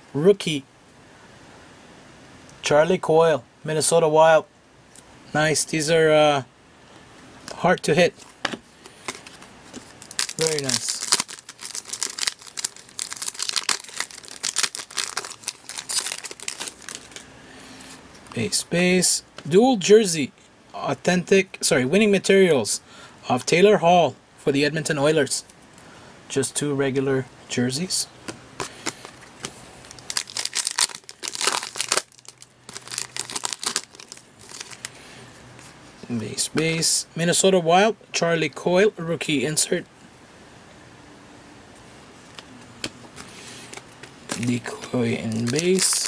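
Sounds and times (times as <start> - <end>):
foil wrapper crinkling and tearing: 9.1 - 17.3, 28.7 - 35.0, 43.2 - 46.0.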